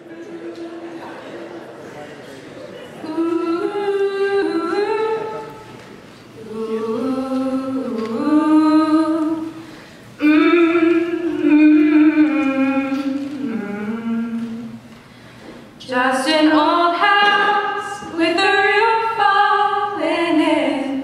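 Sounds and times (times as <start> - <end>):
vocal trio singing harmony: 6.4 - 9.6.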